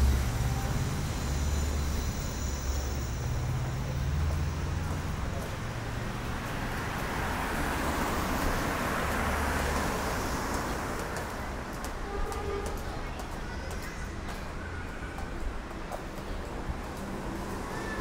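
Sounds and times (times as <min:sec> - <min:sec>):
cars driving past: 0:00.0 - 0:12.0.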